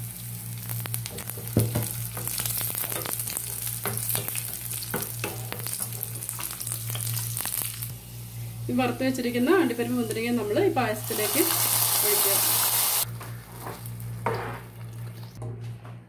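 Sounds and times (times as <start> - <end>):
nuts sizzling in hot ghee: 0.0 - 13.1
steady low hum: 5.9 - 12.1.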